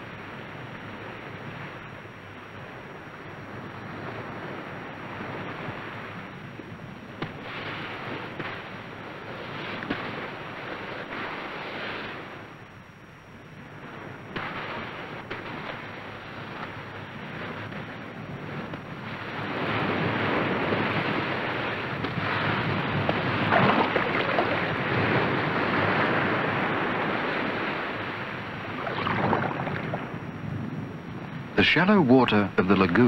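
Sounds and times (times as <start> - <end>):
waves washing onto a beach: 14.7 - 30.3.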